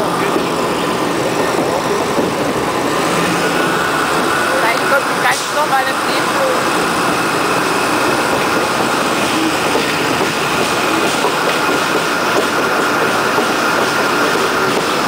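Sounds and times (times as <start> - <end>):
train wheels rumbling on rails: 0.0 - 15.0
faint clicks at rail joints: 9.6 - 15.0.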